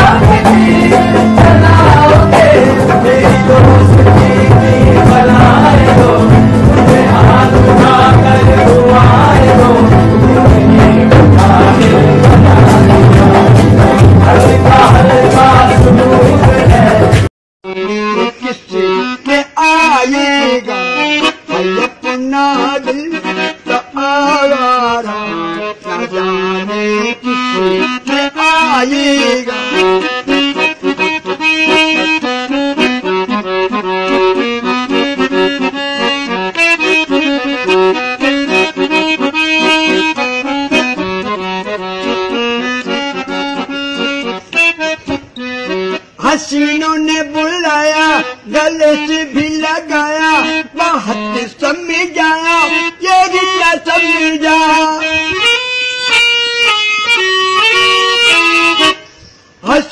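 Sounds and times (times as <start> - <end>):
man singing: 0.0 - 32.9, 46.2 - 55.6, 59.6 - 59.9
harmonium melody: 0.0 - 59.9.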